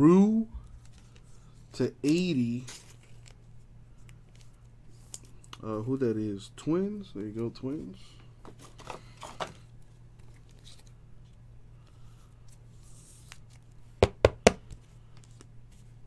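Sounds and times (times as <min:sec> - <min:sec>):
cards rustling: 0:00.7 - 0:05.6, 0:08.5 - 0:11.4.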